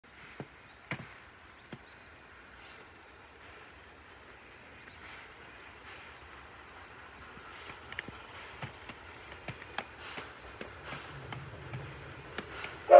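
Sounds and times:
faint outdoor hiss: 0.0 - 12.9
insects trilling: 0.1 - 12.9
sharp clicks: 7.6 - 12.8.

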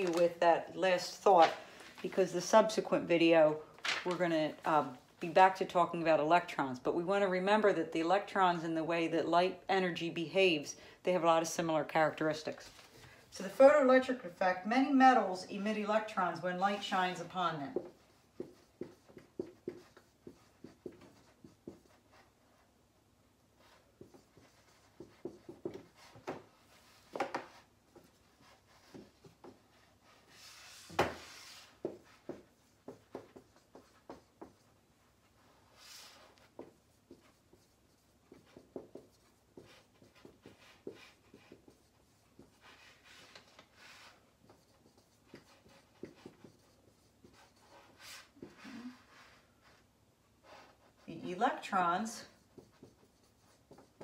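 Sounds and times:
pen writing: 17.8 - 22.4, 23.6 - 34.8, 35.4 - 49.4, 52.4 - 54.0.

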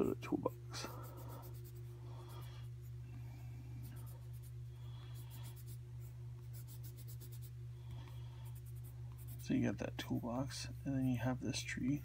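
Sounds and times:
steady low hum: 0.0 - 12.0
pencil scratching on paper: 0.9 - 2.4, 3.9 - 4.5, 5.1 - 5.8, 6.5 - 7.5, 8.4 - 11.4.

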